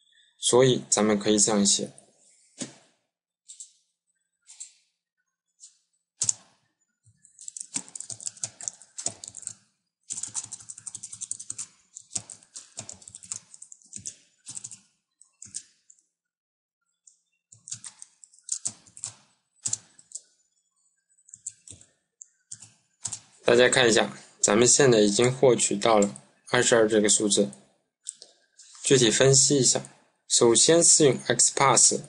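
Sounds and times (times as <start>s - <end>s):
typing on computer keyboard: 5.6s - 6.5s, 7.2s - 16.0s, 17.5s - 20.3s, 21.3s - 23.3s.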